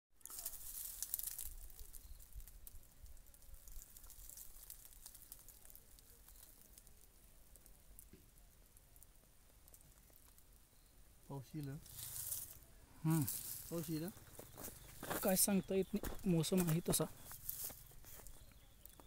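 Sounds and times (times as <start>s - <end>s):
faint crackling and rustling: 0.2s - 19.0s.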